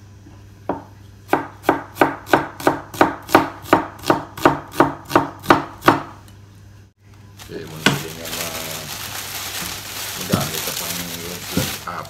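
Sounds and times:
knife chopping on cutting board: 0:00.7 - 0:06.2.

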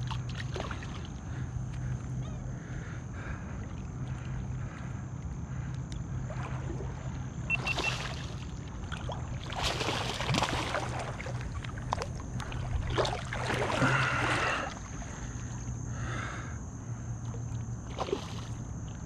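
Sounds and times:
fish thrashing and splashing: 0:06.3 - 0:15.1.

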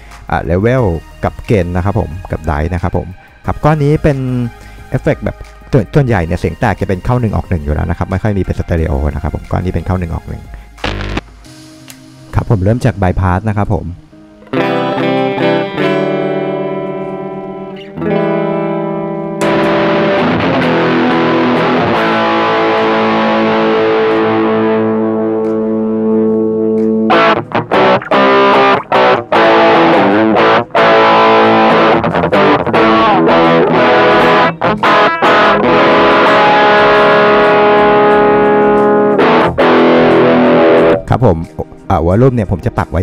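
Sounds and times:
clean electric guitar chords: 0:10.8 - 0:12.1, 0:14.0 - 0:41.6.

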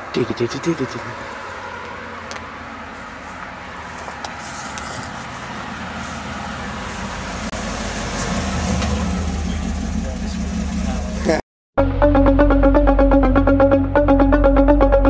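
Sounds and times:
car engine rumbling: 0:00.0 - 0:11.4.

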